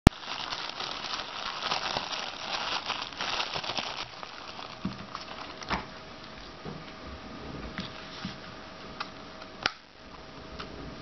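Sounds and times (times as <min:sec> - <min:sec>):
plastic bag crinkling: 0:00.0 - 0:05.8.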